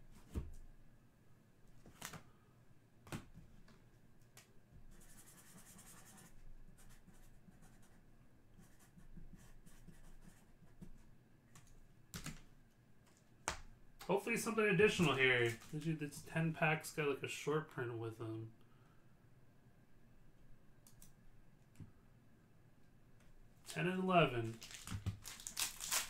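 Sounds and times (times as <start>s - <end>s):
foil pack rustle: 15.0s - 15.9s, 24.4s - 26.0s.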